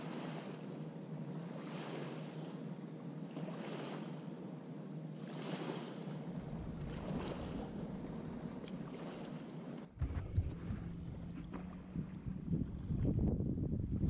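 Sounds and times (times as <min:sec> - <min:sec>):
small waves lapping on shore: 0:00.0 - 0:14.0
wind rumbling on microphone: 0:06.4 - 0:09.1, 0:10.0 - 0:14.0.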